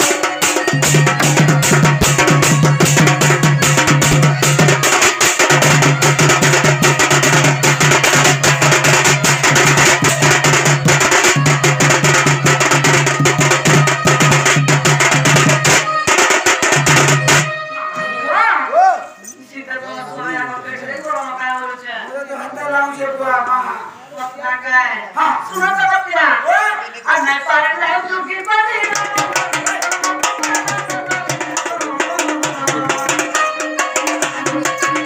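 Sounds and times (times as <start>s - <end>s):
barrel drum played by hand: 0.0s - 17.6s, 28.7s - 35.0s.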